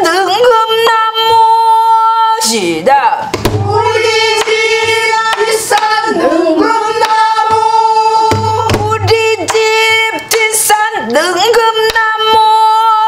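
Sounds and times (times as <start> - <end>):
women singing: 0.0 - 2.5, 3.1 - 13.0
percussive taps: 3.3 - 5.9, 7.0 - 10.4.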